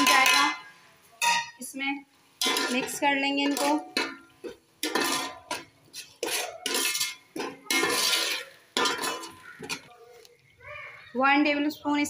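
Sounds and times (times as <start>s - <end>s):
metal spoon scraping pot: 2.4s - 10.3s
pot ringing: 6.3s - 9.9s.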